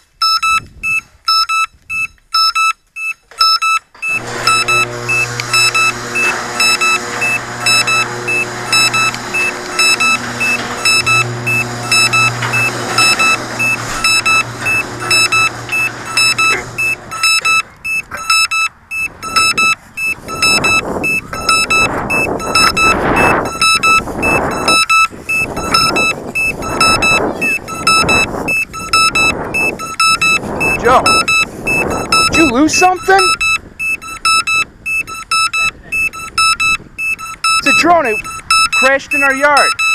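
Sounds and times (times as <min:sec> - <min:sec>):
drone alarm beeping: 0:00.2 - 0:39.9
steady low hum: 0:04.1 - 0:32.5.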